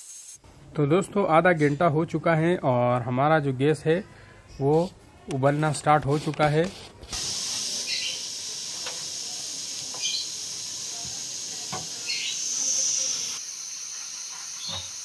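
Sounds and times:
pressure cooker hissing steam: 0:00.0 - 0:00.4, 0:07.1 - 0:15.0.

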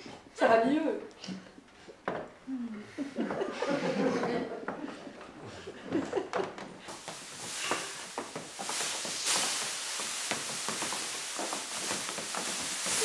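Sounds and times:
plastic film rustling and crackling: 0:06.9 - 0:13.0.

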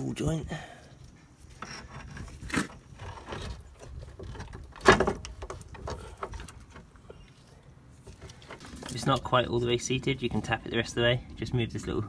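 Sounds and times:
metal clunks and knocks: 0:03.2 - 0:06.9.

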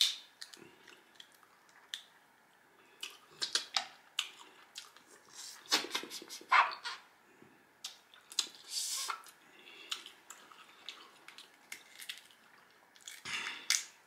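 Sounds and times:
chewing: 0:07.8 - 0:13.8.

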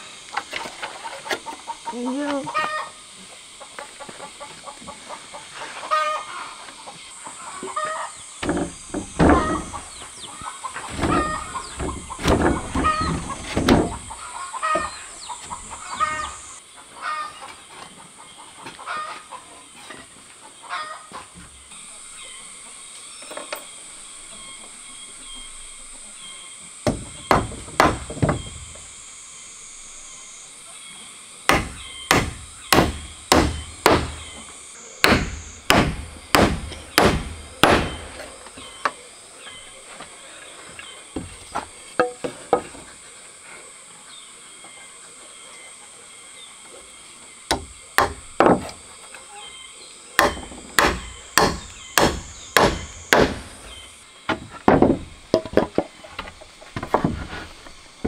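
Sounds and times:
chickens clucking: 0:00.0 - 0:26.8, 0:55.3 - 0:58.0
dull knocks of wood: 0:08.4 - 0:10.1, 0:10.8 - 0:16.2, 0:26.8 - 0:28.9, 0:31.5 - 0:39.0, 0:41.2 - 0:42.9, 0:47.5 - 0:48.8, 0:50.2 - 0:57.8.

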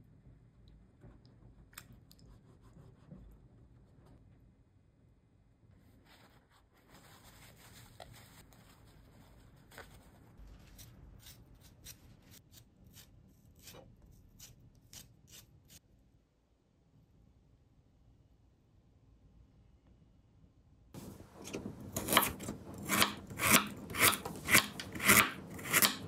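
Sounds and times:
paper towel rustling: 0:05.8 - 0:11.0
spoon scraping ginger skin: 0:21.0 - 0:26.0.

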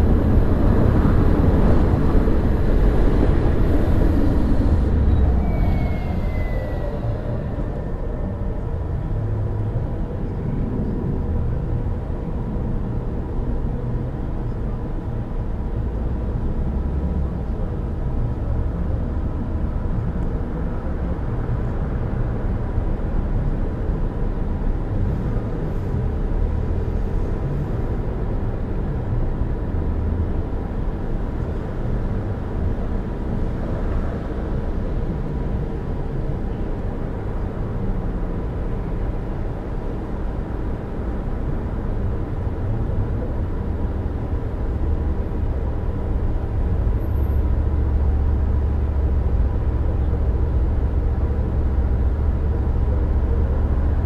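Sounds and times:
car road and engine rumble: 0:00.0 - 0:54.0.

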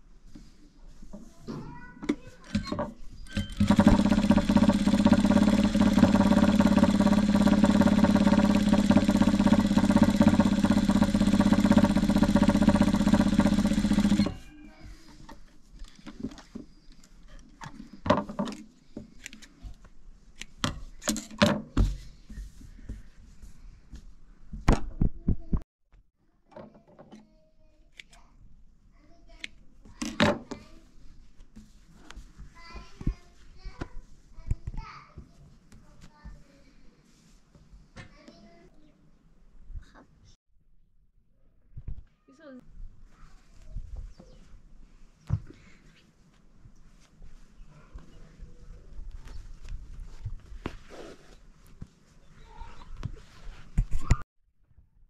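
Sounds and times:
sewing machine stitching: 0:02.6 - 0:14.5.

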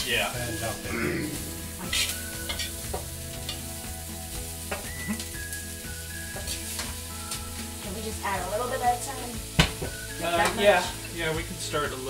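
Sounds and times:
vegetables sizzling in a wok: 0:00.0 - 0:12.0
metal spoons clicking on wok: 0:01.9 - 0:02.8.

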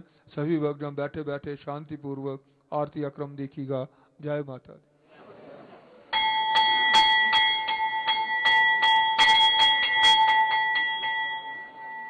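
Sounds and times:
brass bell rung by hand: 0:06.2 - 0:12.0.

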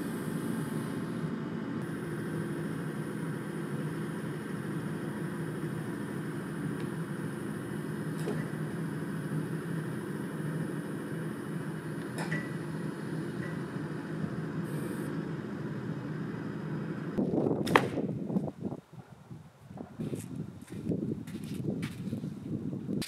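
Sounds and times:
machine humming: 0:00.0 - 0:17.4.

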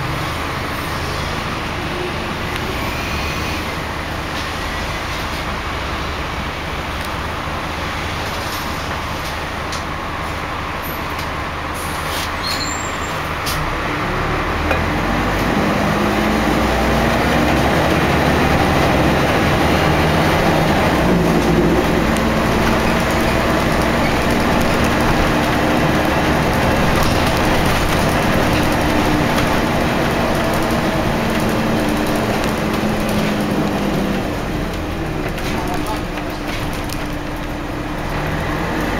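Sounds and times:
bus diesel engine running: 0:00.0 - 0:38.9
road and body noise: 0:04.0 - 0:38.9.

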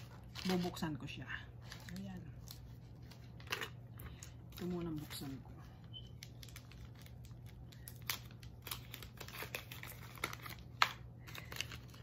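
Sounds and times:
packaging crinkling and ripping: 0:00.0 - 0:01.0, 0:01.6 - 0:12.0.

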